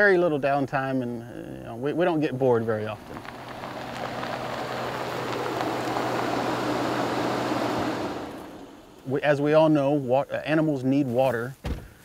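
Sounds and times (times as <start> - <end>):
pickup truck engine approaching: 1.9 - 10.1
tyre noise on dirt road: 1.9 - 12.0.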